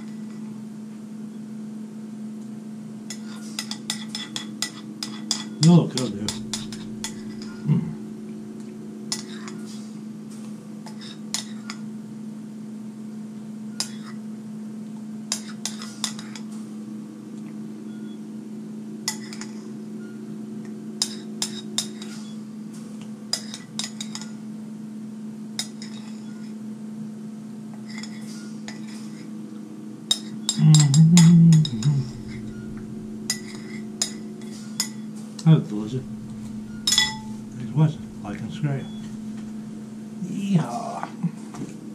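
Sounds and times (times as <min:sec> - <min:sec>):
metal spoon scraping a bowl: 0:03.1 - 0:07.6, 0:09.1 - 0:09.8, 0:27.8 - 0:29.3, 0:30.1 - 0:35.0, 0:36.0 - 0:39.6
steady low hum: 0:03.1 - 0:11.5, 0:30.6 - 0:40.5
short low voice sound: 0:07.6 - 0:08.0, 0:30.6 - 0:32.6.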